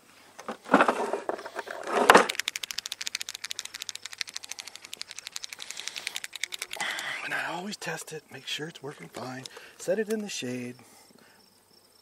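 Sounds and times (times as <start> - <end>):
paint pen ball rattling: 1.8 - 7.2.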